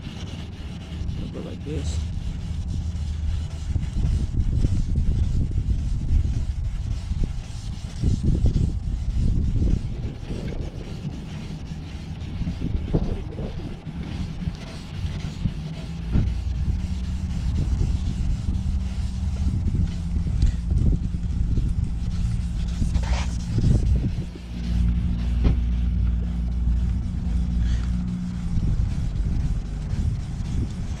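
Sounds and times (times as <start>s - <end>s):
vehicle engine idling: 8.2s - 31.0s
short low knocks: 25.3s - 25.8s.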